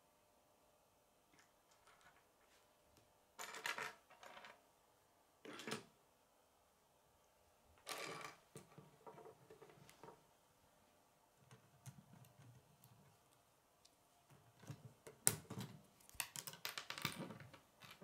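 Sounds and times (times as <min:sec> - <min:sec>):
plastic pieces clattering and clicking: 0:15.3 - 0:18.0.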